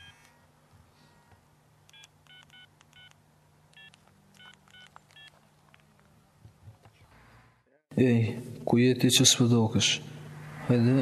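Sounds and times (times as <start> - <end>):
phone keypad beeps: 0.0 - 3.2, 3.8 - 5.4.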